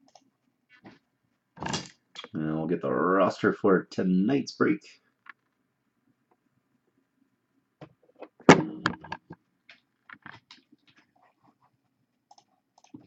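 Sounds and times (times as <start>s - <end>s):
computer mouse clicks: 12.3s - 13.0s.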